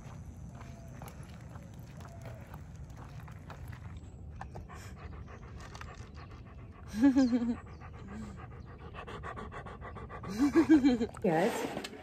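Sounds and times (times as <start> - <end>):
dog panting: 4.4 - 10.9.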